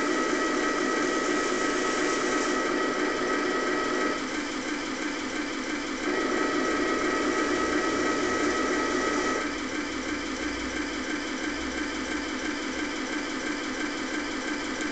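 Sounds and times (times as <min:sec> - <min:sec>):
motor drive whine: 0:00.0 - 0:10.1
simulated engine idle through speaker: 0:00.0 - 0:14.9.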